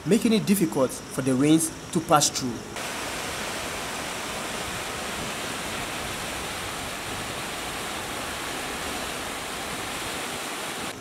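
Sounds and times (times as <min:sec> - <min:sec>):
floodwater rushing through drain: 0:02.8 - 0:11.0.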